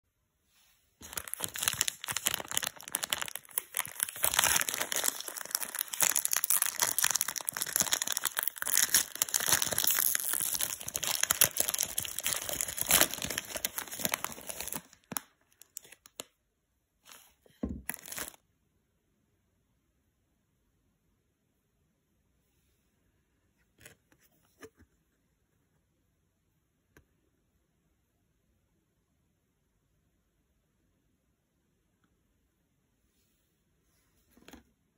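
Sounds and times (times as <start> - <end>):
plastic wrapper crinkling and tearing: 1.0 - 16.3, 17.1 - 18.4.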